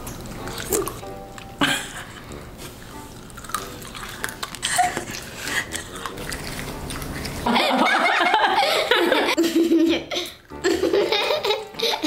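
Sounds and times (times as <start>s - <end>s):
mouth smacking from eating: 0.2s - 1.6s, 2.2s - 7.5s
people laughing: 7.4s - 12.0s.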